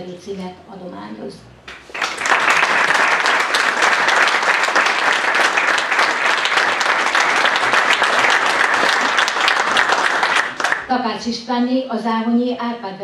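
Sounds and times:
audience applauding: 0:01.7 - 0:10.9.

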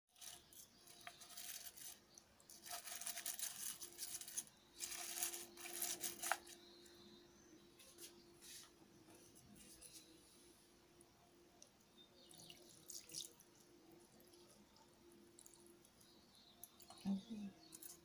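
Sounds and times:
metal spoon stirring: 0:00.2 - 0:06.6.

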